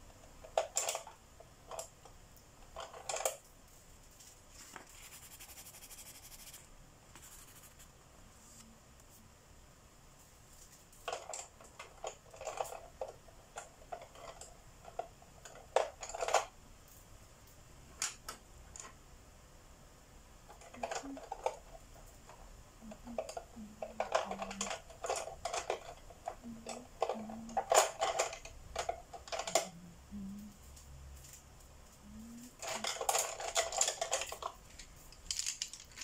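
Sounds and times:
wooden pencils clattering: 0.0s - 3.5s, 10.6s - 16.6s, 20.5s - 29.8s, 32.2s - 36.0s.

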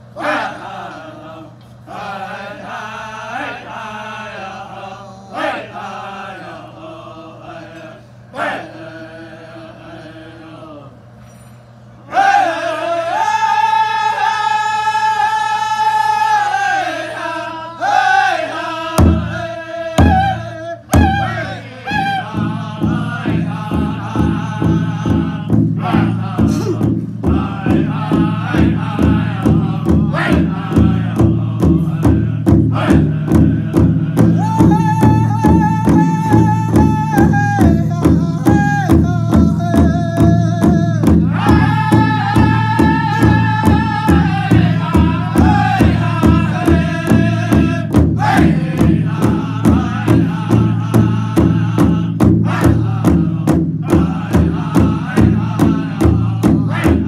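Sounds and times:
men singing in unison: 0.1s - 11.0s, 12.1s - 57.0s
drum beat: 18.9s - 57.0s.

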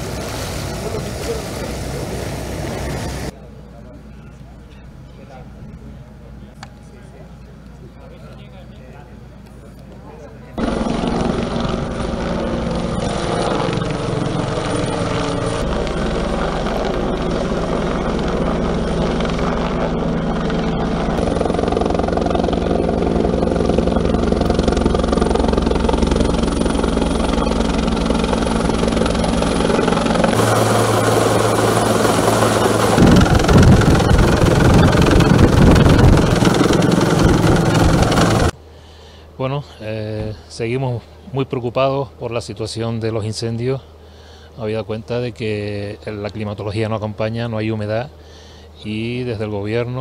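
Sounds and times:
helicopter flying overhead: 0.0s - 6.4s, 10.5s - 38.6s.

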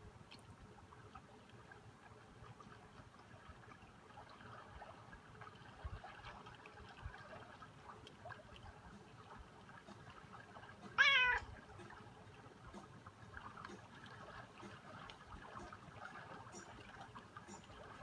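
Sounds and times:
cat meowing: 11.0s - 11.5s.

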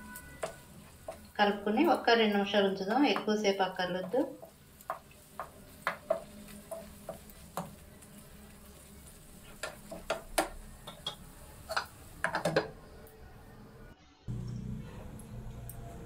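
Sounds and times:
spatula knocking on metal pan: 3.9s - 7.8s.

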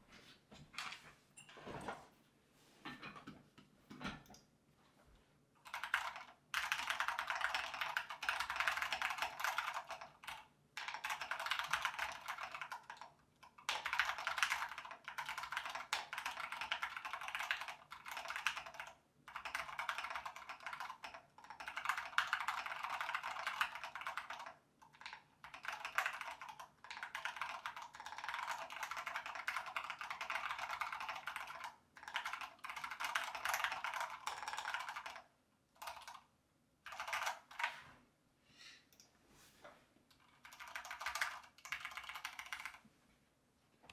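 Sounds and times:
mechanical keyboard typing: 5.6s - 37.8s, 40.3s - 42.8s.

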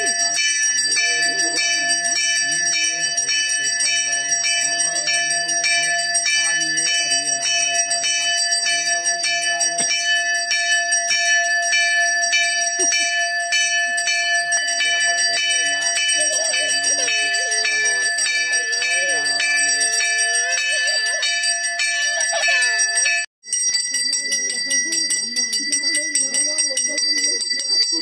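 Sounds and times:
temple bell ringing: 0.0s - 28.0s.

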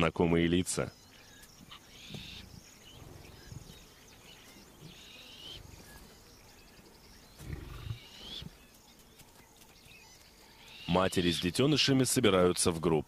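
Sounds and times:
high chirping calls: 0.0s - 12.5s
lioness grunting: 7.4s - 8.1s.

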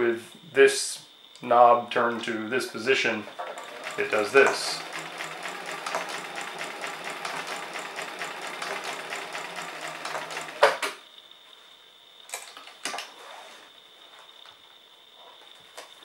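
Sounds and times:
sewing machine clattering: 3.4s - 10.9s.

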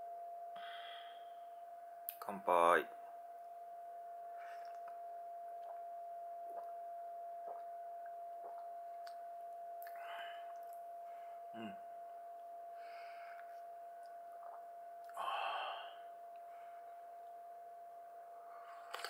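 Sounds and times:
man humming mm: 11.5s - 11.9s
faint high tone: 11.5s - 12.3s
person sipping drink: 18.7s - 19.0s.

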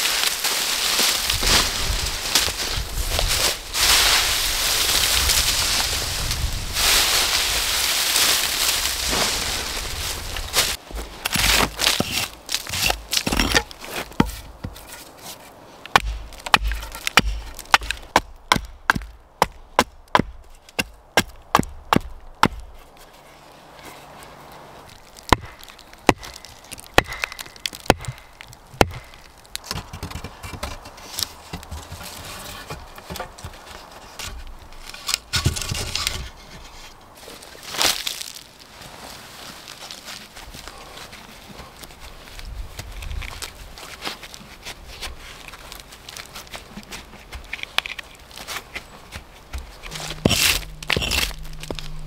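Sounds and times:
wood chips scattering: 0.0s - 14.4s, 24.8s - 29.9s, 37.4s - 40.2s, 49.5s - 52.0s
rustling: 0.0s - 18.2s, 22.6s - 52.0s
axe chopping wood: 10.9s - 14.8s, 15.9s - 22.8s, 25.3s - 30.9s, 49.1s - 51.8s.

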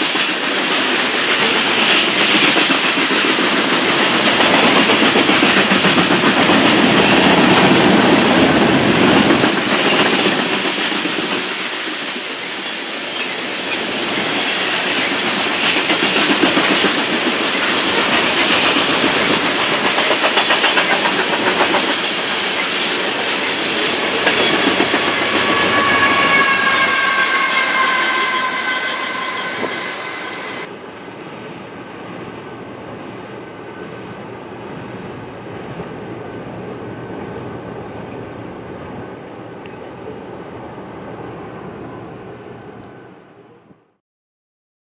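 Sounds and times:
train wheels clattering: 0.0s - 30.7s
high ringing tone: 25.3s - 30.7s.

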